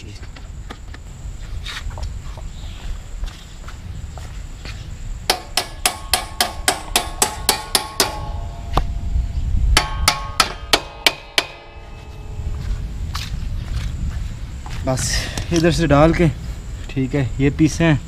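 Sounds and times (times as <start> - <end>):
hammer striking metal: 5.3 - 9.1, 9.7 - 12.5.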